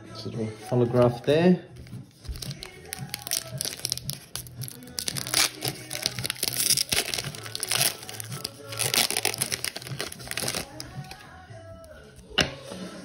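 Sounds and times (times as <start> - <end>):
background music: 0.0 - 13.0
foil wrapper tearing and crinkling: 2.3 - 11.2.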